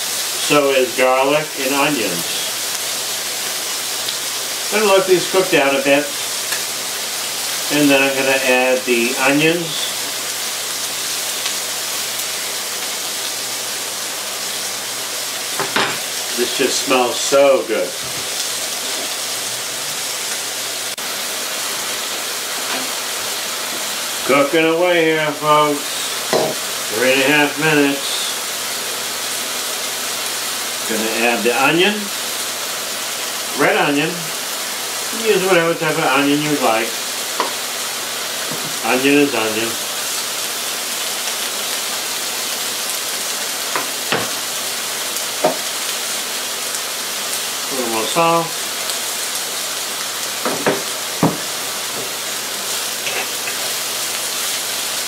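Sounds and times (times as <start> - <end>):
food sizzling in a frying pan: 0.0 - 55.0.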